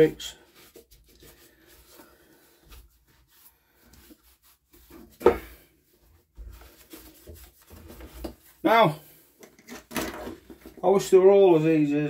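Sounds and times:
handling on a workbench: 3.9s - 8.6s, 9.4s - 10.8s.

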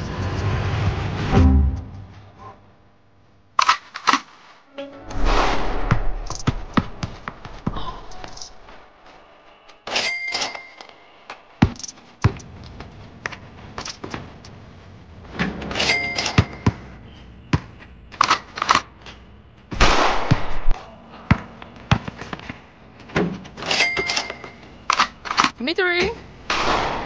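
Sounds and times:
loud rushing noise: 5.0s - 7.8s
basketball bouncing on concrete: 11.6s - 12.4s, 16.4s - 16.9s, 21.3s - 22.6s.

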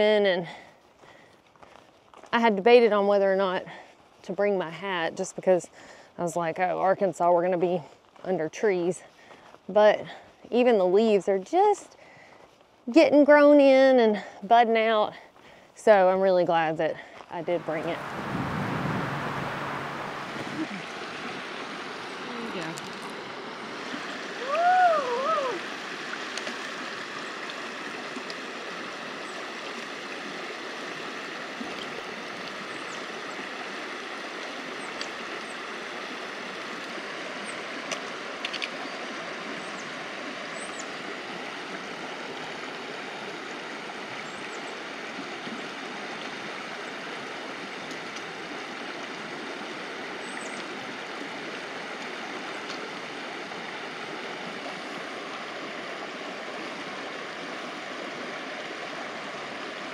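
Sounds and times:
creek flowing over rocks: 17.2s - 59.9s.

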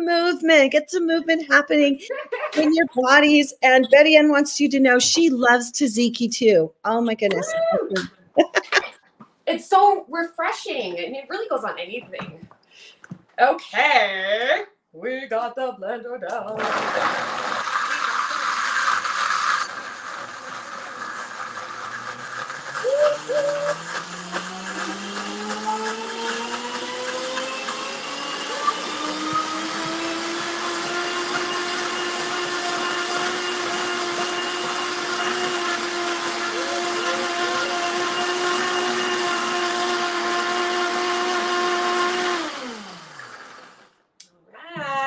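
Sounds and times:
blender motor rising: 16.6s - 44.0s.

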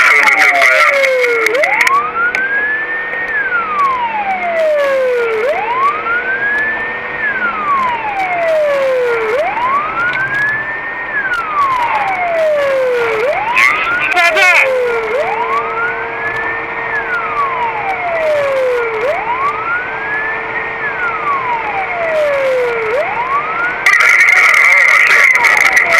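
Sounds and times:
police car siren wailing: 0.0s - 25.9s.

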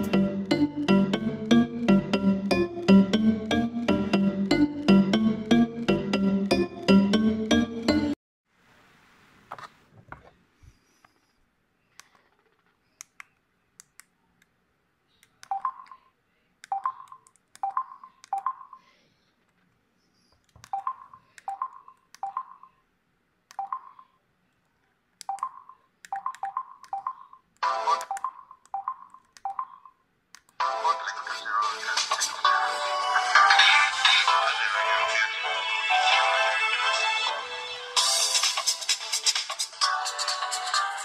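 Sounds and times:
phone keypad beeps: 16.7s - 18.8s, 20.7s - 22.7s, 23.5s - 24.1s, 25.2s - 27.3s.

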